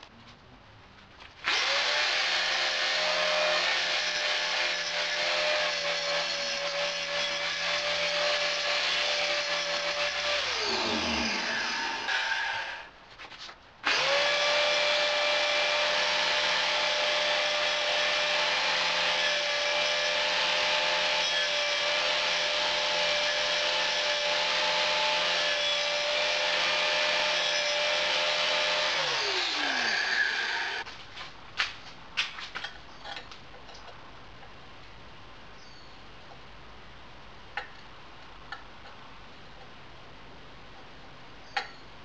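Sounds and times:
angle grinder grinding metal: 0:01.5 - 0:12.9, 0:13.9 - 0:30.9.

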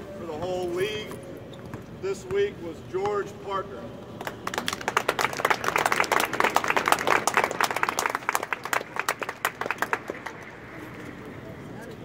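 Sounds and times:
crowd applauding: 0:04.2 - 0:10.8.

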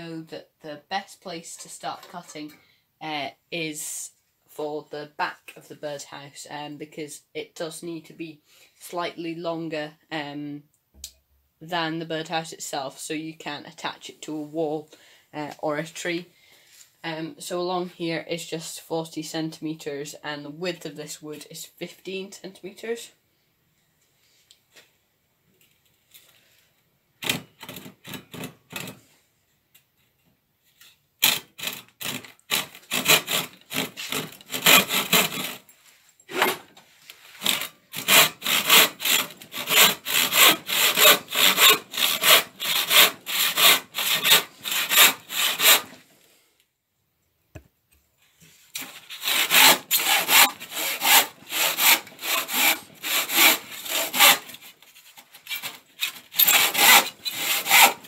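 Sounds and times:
handsaw cutting wood: 0:31.2 - 0:35.7, 0:36.3 - 0:46.0, 0:48.8 - 0:58.0.

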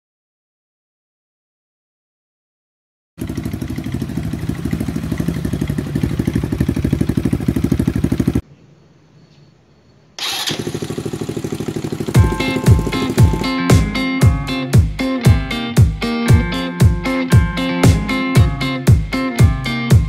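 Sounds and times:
motorcycle engine pulsing exhaust: 0:03.2 - 0:08.4, 0:10.2 - 0:14.4.

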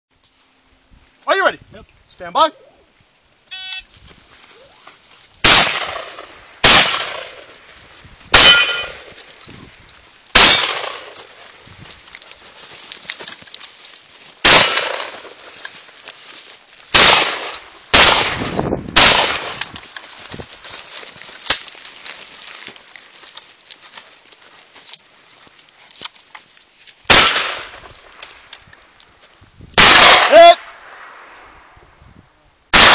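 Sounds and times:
shotgun shots: 0:05.4 - 0:07.5, 0:08.3 - 0:09.1, 0:10.3 - 0:11.2, 0:14.4 - 0:15.4, 0:16.9 - 0:19.7, 0:27.1 - 0:27.9, 0:29.8 - 0:31.4
sharp metal clank: 0:08.3 - 0:09.1, 0:10.4 - 0:11.1, 0:14.4 - 0:15.2, 0:18.0 - 0:18.4, 0:19.0 - 0:19.6
metallic ring of steel targets: 0:08.4 - 0:09.1.

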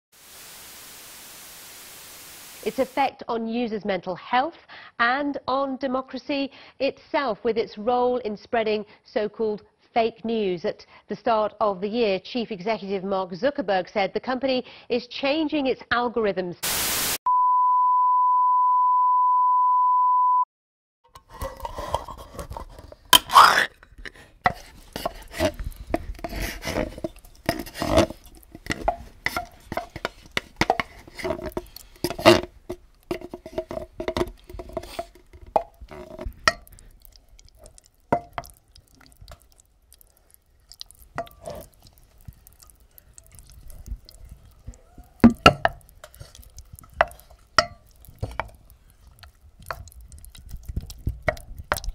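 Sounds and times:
wet squelching of food stirred: 0:21.2 - 0:51.9
sticky clicks and plops: 0:24.5 - 0:51.9.

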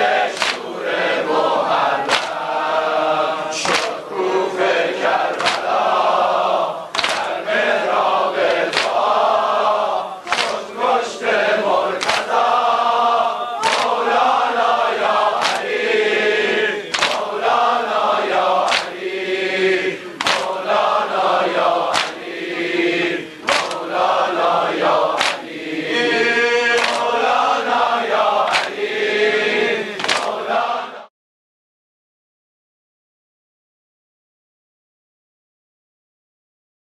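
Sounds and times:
crowd of men chanting: 0:00.0 - 0:31.1
hands slapping bare chests: 0:00.4 - 0:00.7, 0:02.0 - 0:02.4, 0:03.6 - 0:04.0, 0:05.3 - 0:05.8, 0:06.9 - 0:07.4, 0:08.5 - 0:09.2, 0:10.3 - 0:10.8, 0:11.9 - 0:12.5, 0:13.6 - 0:14.2, 0:15.3 - 0:15.8, 0:16.9 - 0:17.6, 0:18.6 - 0:19.0, 0:20.2 - 0:20.8, 0:21.6 - 0:22.3, 0:23.4 - 0:24.0, 0:25.1 - 0:25.6, 0:26.8 - 0:27.2, 0:28.4 - 0:28.8, 0:30.0 - 0:30.5.

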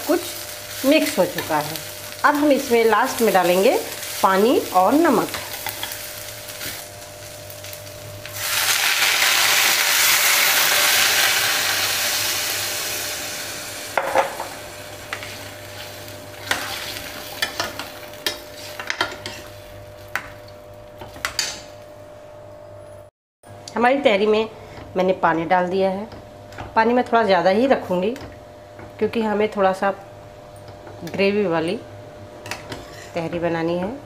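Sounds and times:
water sizzling in hot pan: 0:00.0 - 0:18.2.

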